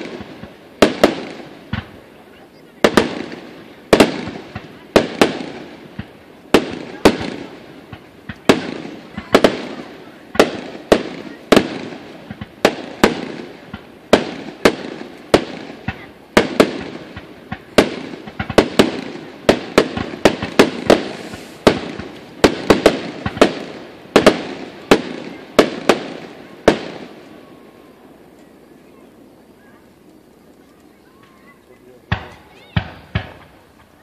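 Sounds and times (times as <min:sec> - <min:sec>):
fireworks bangs: 0:00.0 - 0:34.0.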